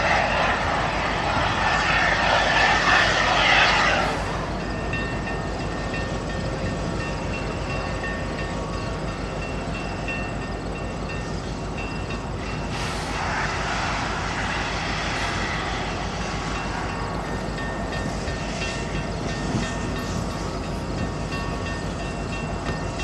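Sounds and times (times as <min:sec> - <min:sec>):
loud hissing rush: 0:00.0 - 0:04.9, 0:12.5 - 0:21.2
steam locomotive rumbling: 0:00.0 - 0:23.0.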